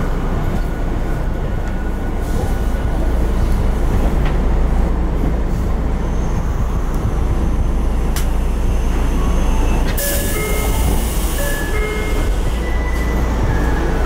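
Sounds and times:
subway car wheels rumbling: 0:00.0 - 0:14.0.

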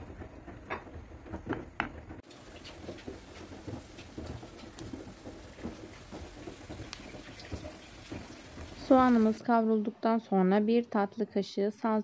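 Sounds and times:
wooden spoon knocking on frying pan: 0:00.0 - 0:09.4
onion sizzling in oil: 0:02.2 - 0:09.4.

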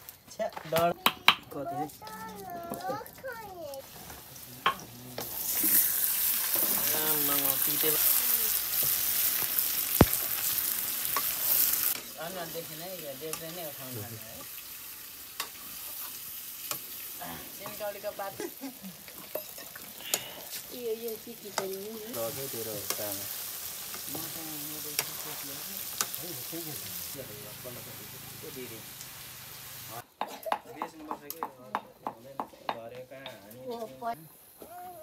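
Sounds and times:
chicken sizzling in hot oil: 0:03.3 - 0:30.0.

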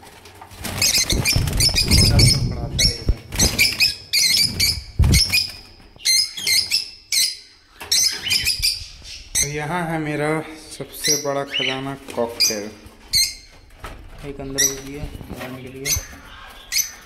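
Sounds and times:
lovebirds chirping shrilly: 0:00.6 - 0:17.0
low thumps: 0:01.0 - 0:03.8.

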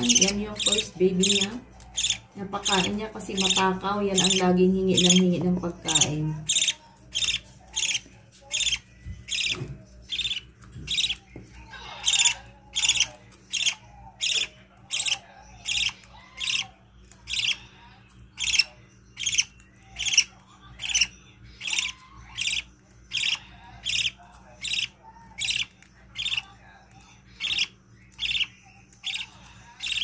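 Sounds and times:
budgerigar chick begging calls: 0:00.0 - 0:05.3.

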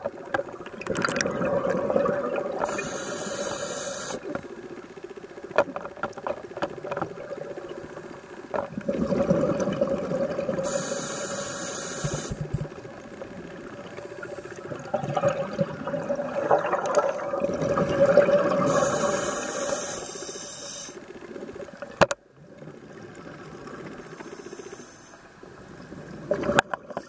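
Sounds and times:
exhaled bubbles underwater: 0:00.0 - 0:04.4, 0:06.7 - 0:20.1, 0:25.8 - 0:27.0
regulator air hiss: 0:02.6 - 0:04.3, 0:10.6 - 0:12.6, 0:18.6 - 0:21.1, 0:24.0 - 0:25.4.

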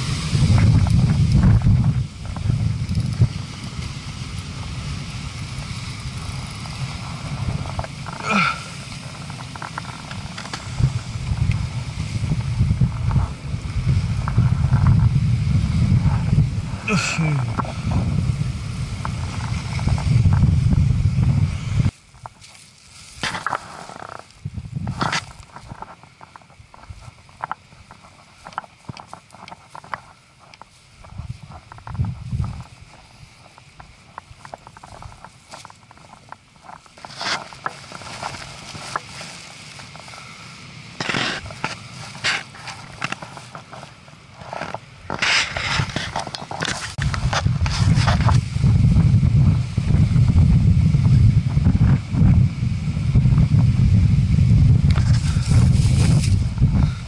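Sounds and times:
wind buffeting microphone: 0:00.0 - 0:57.0
rustles and crunching knocks: 0:06.6 - 0:15.1, 0:21.8 - 0:40.1, 0:41.0 - 0:50.5, 0:54.8 - 0:57.0
footsteps on rock and grass: 0:21.9 - 0:40.1, 0:41.0 - 0:48.6, 0:54.8 - 0:57.0.

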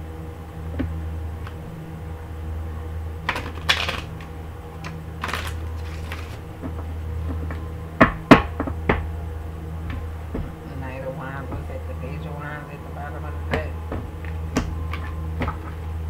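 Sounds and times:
low hum: 0:00.0 - 0:16.0
cards shuffled on a tabletop: 0:03.3 - 0:06.4.

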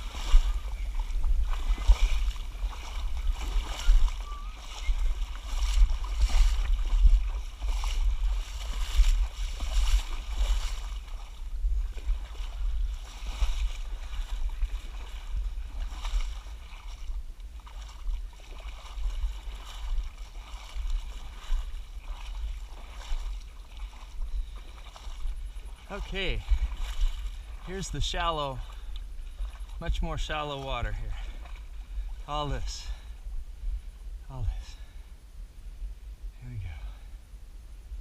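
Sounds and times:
water splashing around wading legs: 0:00.0 - 0:33.1
low rumble on microphone: 0:00.0 - 0:38.0.

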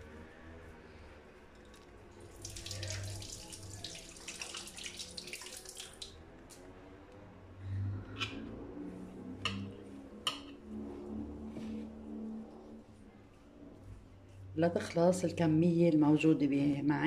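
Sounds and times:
faint low hum: 0:00.0 - 0:17.0
dough squished between palms: 0:02.3 - 0:06.2.

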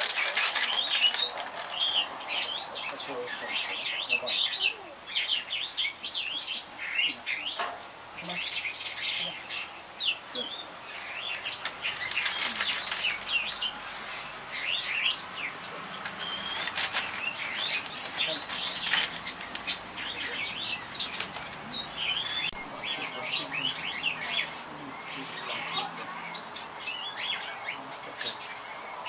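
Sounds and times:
rustling or crackling: 0:00.0 - 0:05.0, 0:10.4 - 0:26.6
small birds chirping: 0:00.0 - 0:29.0.

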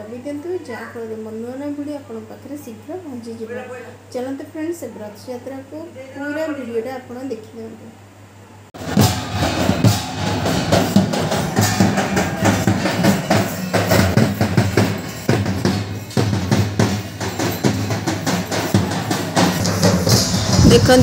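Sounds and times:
barrel drums beaten fast: 0:08.8 - 0:21.0.

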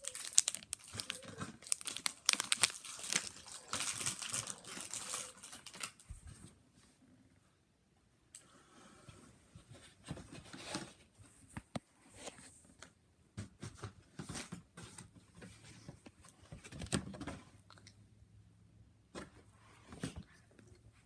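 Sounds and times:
packaging rustling: 0:00.0 - 0:06.0.

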